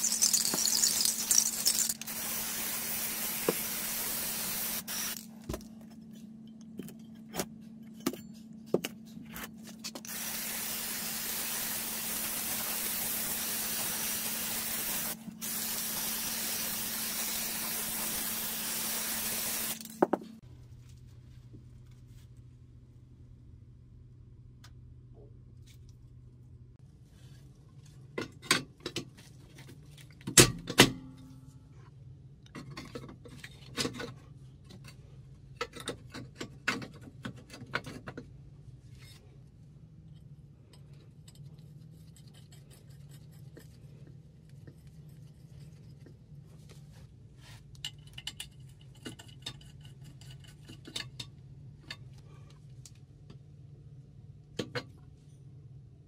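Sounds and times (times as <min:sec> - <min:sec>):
metal tools clinking and knocking: 0:00.0 - 0:02.1.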